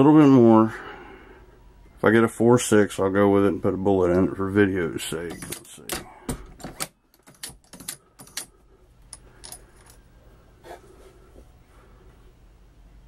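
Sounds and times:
metallic clicks of reloading press: 0:05.3 - 0:10.0.

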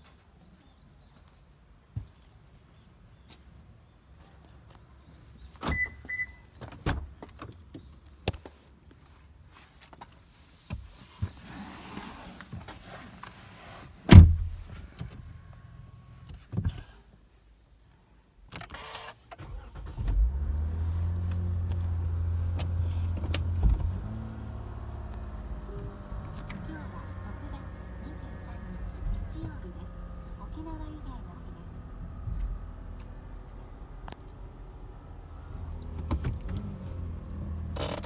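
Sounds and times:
car door thud: 0:14.1 - 0:14.6
car engine starting and idling: 0:18.6 - 0:38.0.

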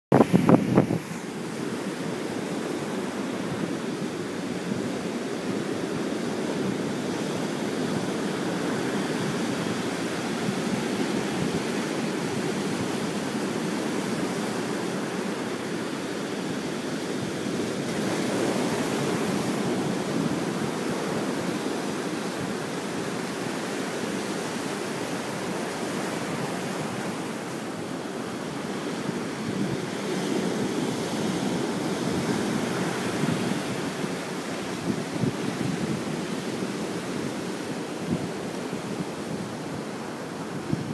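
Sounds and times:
ocean surf breaking on rocks: 0:00.1 - 0:40.9.

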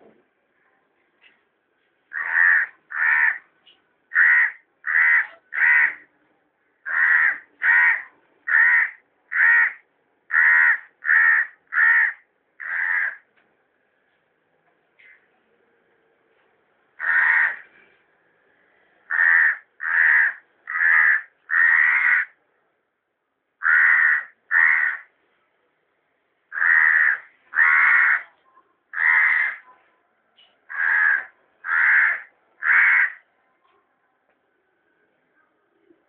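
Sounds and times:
crow cawing: 0:02.1 - 0:03.4, 0:04.1 - 0:06.0, 0:06.9 - 0:13.2, 0:17.0 - 0:17.6, 0:19.1 - 0:22.4, 0:23.6 - 0:25.1, 0:26.5 - 0:28.3, 0:29.0 - 0:29.6, 0:30.7 - 0:33.2.

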